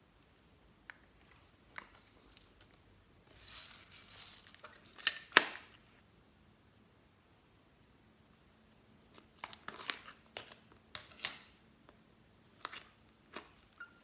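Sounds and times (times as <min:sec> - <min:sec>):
rustling and scraping plastic: 0:01.2 - 0:05.8.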